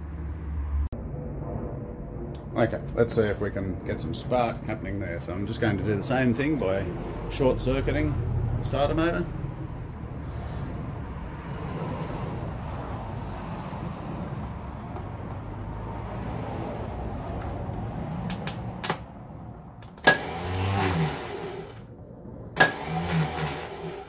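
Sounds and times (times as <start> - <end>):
steady low hum: 0.0 - 11.4.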